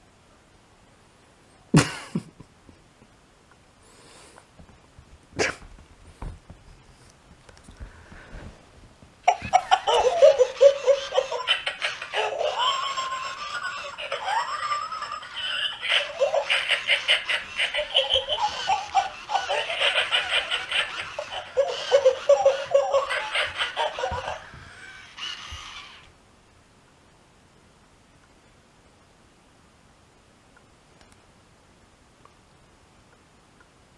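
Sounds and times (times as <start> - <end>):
toy dog recorded laughter: 9.2 - 26.1.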